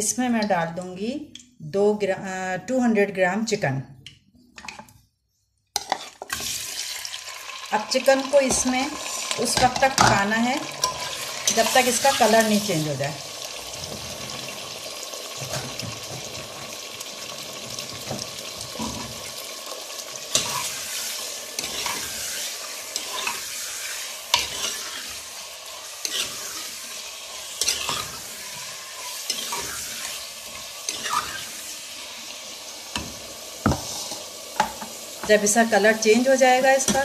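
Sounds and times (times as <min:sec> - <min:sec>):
spoon scraping and knocking pot: 0:05.8 - 0:06.5
chicken sizzling in hot oil: 0:05.8 - 0:37.0.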